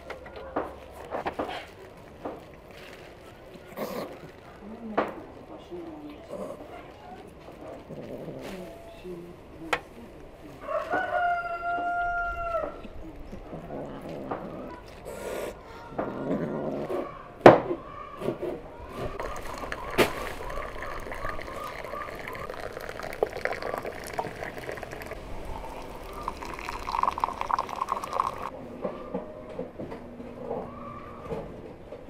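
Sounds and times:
water pouring into glass: 0:19.2 - 0:28.5.

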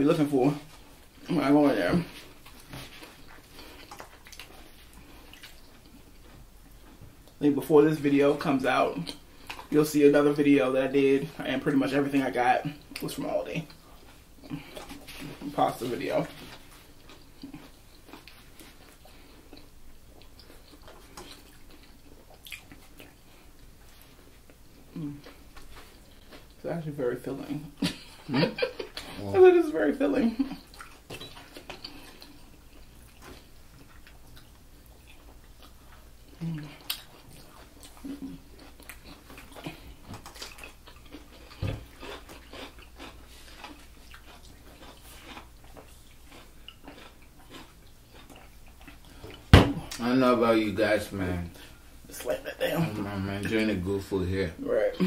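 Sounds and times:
people chewing: 0:00.1 - 0:26.6, 0:27.4 - 0:55.0
dull thump: 0:49.5 - 0:49.8.

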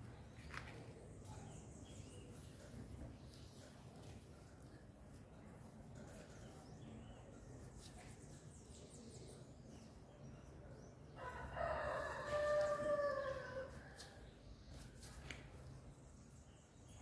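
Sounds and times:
rooster crowing: 0:11.2 - 0:13.8.

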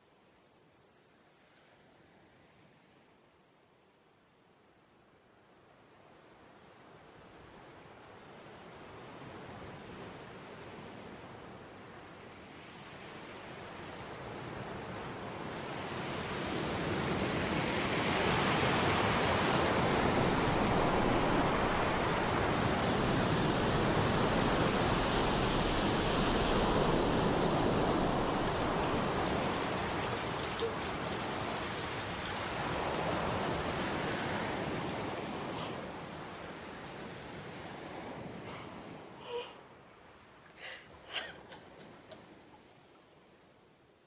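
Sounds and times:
water pouring and splashing: 0:28.0 - 0:33.2.

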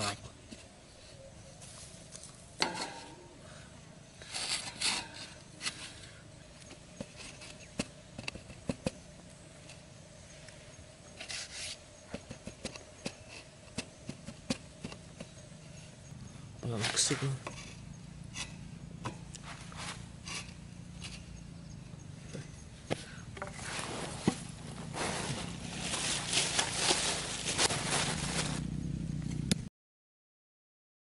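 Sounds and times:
hands scraping sandy soil: 0:04.1 - 0:08.9, 0:11.1 - 0:15.4, 0:16.6 - 0:18.6, 0:19.3 - 0:21.3, 0:23.5 - 0:28.6.

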